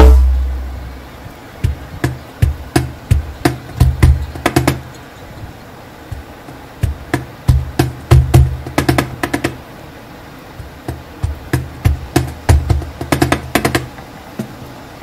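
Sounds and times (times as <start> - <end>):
low drum hits: 0.0 - 4.9, 6.1 - 9.6, 10.6 - 14.5
wood block knocks: 1.6 - 5.0, 6.1 - 9.6, 10.6 - 14.6.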